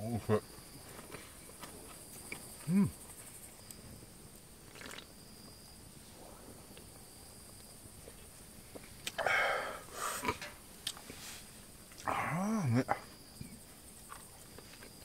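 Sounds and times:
insects chirping: 0:00.0 - 0:15.0
person humming: 0:02.7 - 0:02.9.

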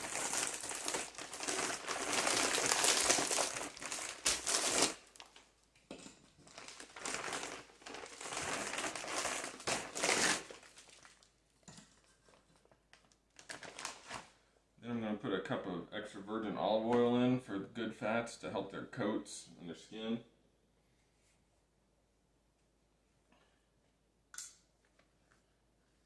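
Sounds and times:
plastic bag crinkling: 0:00.0 - 0:05.5, 0:06.4 - 0:11.3, 0:12.6 - 0:14.3.

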